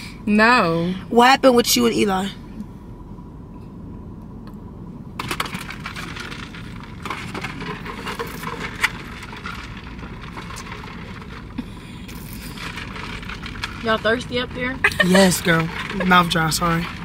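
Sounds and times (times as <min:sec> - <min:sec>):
slurping through straws: 0:05.8 - 0:17.0.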